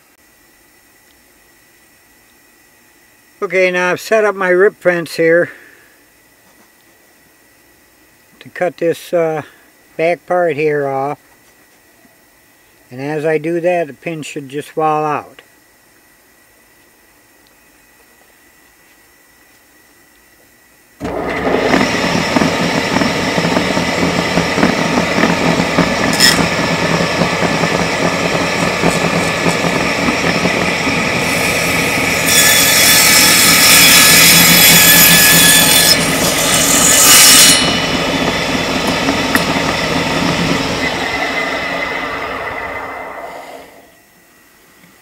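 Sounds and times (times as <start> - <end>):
saw blade cutting wood: 21.0 - 42.1
table saw running: 21.0 - 44.0.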